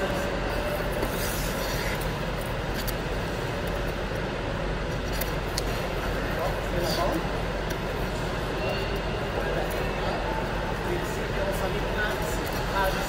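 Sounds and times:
ice rink hum and hiss: 0.0 - 13.0.

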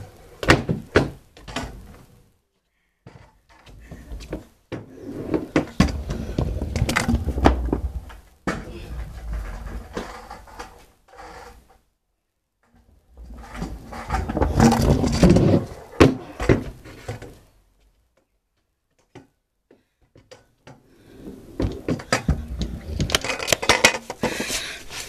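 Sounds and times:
kick scooter rolling and clattering: 3.1 - 10.9, 12.8 - 17.4, 21.6 - 25.0.

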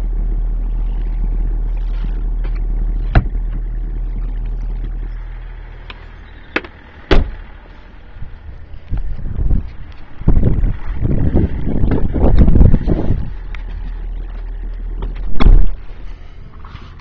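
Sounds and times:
car cabin hum: 0.0 - 17.0
car door slam: 3.1 - 3.6, 6.6 - 7.4, 15.0 - 15.8
wind noise: 8.1 - 16.8.

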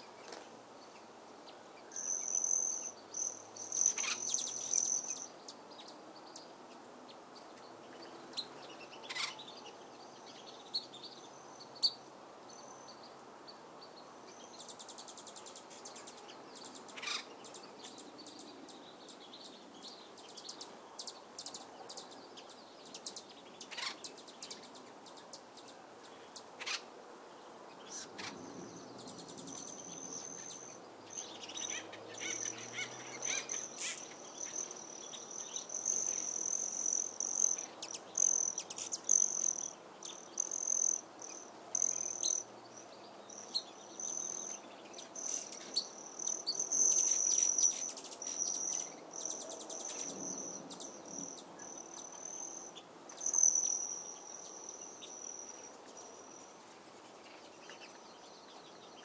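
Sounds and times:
wild birds chirping: 0.0 - 59.0
insect trill: 1.9 - 5.3, 29.1 - 42.5, 45.2 - 56.6.

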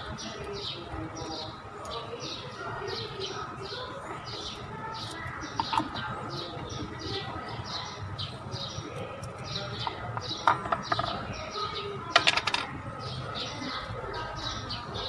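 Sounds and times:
small bird chirping: 0.1 - 12.2.

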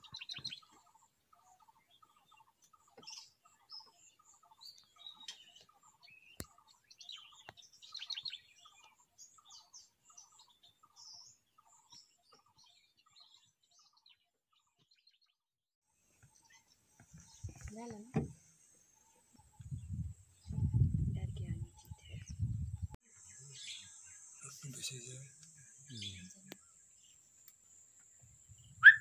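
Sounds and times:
birds chirping: 0.0 - 15.4, 16.0 - 29.0
bird repeating low call: 28.8 - 29.0.

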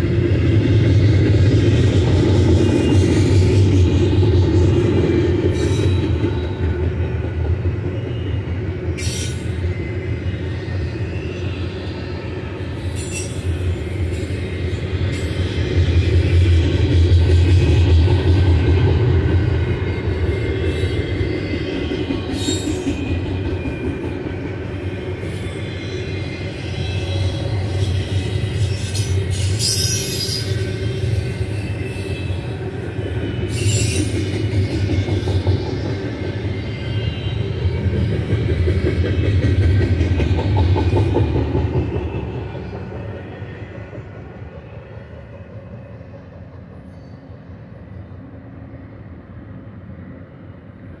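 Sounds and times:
train wheels rumbling: 0.0 - 48.7
faint wheel squeal: 7.9 - 15.4, 24.8 - 37.9.

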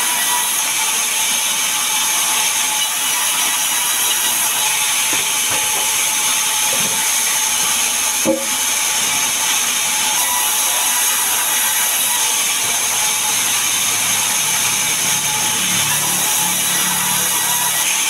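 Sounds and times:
band saw cutting wood: 0.0 - 18.0
sharp knock: 8.3 - 8.6.

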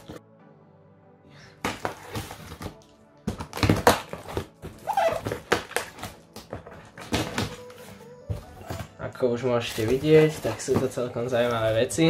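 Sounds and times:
cardboard and tape tearing: 1.8 - 6.2.

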